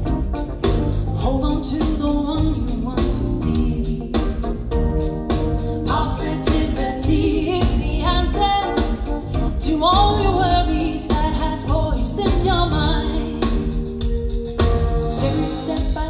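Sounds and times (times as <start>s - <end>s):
instrumental backing with beat: 0.0s - 16.0s
woman singing into a microphone: 1.2s - 4.6s, 5.8s - 14.0s, 15.1s - 16.0s.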